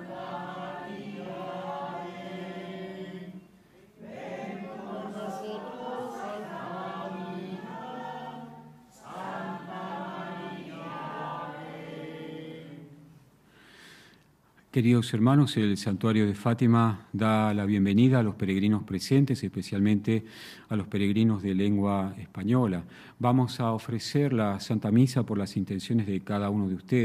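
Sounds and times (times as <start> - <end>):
choir singing a slow hymn: 0.0 - 13.4.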